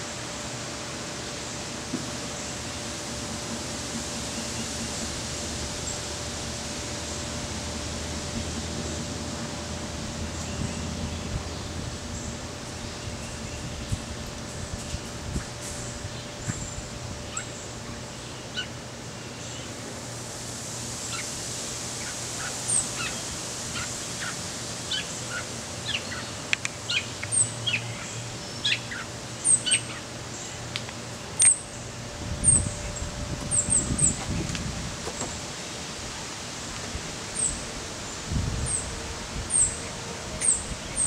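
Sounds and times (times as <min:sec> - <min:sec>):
birds chirping and calling: 0:15.4 - 0:18.8.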